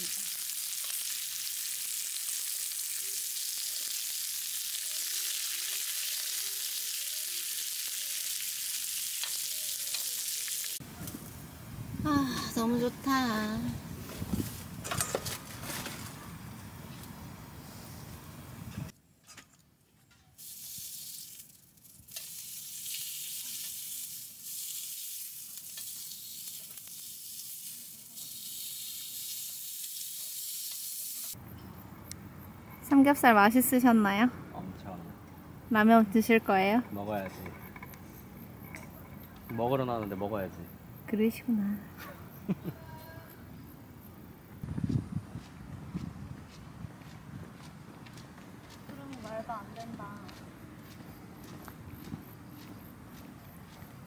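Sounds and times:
cheese sizzling in a hot pan: 0:00.0 - 0:10.8, 0:20.4 - 0:31.4.

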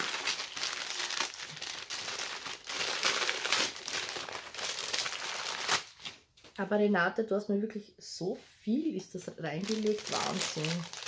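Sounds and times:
wrapping paper crinkling: 0:00.0 - 0:06.3, 0:09.6 - 0:11.0.

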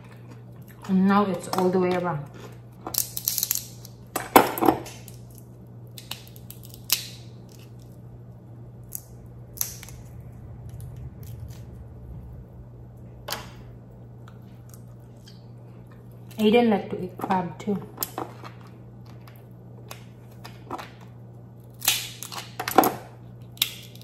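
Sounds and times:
steady low hum: 0:00.0 - 0:24.0
crab shell snapping and cracking: 0:02.4 - 0:08.0, 0:18.0 - 0:24.0.

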